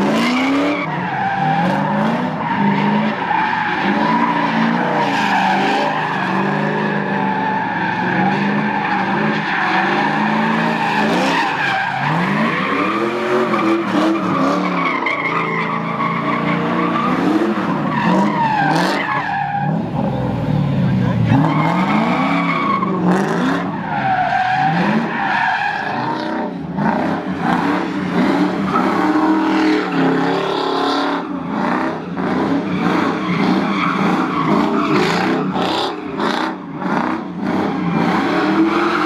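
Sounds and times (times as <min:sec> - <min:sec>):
car engine revving: 0:00.0 - 0:39.0
tyres squealing: 0:00.2 - 0:19.8.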